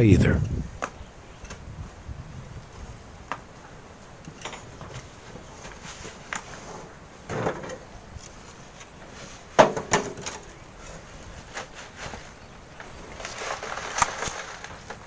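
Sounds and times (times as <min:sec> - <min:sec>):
shovels scraping sand: 0:10.3 - 0:15.0.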